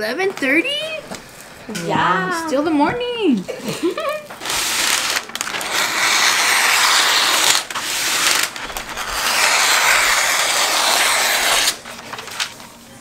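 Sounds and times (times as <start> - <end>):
scissors cutting paper: 4.4 - 12.6.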